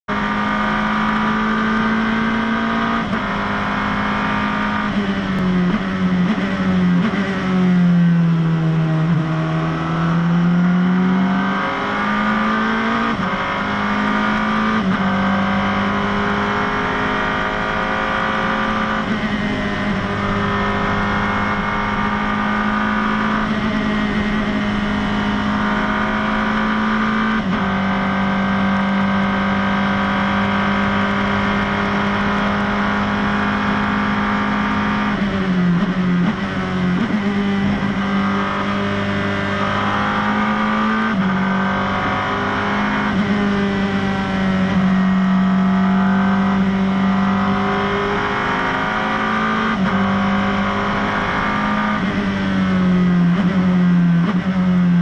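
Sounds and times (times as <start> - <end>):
race car engine from cockpit: 0.0 - 55.0.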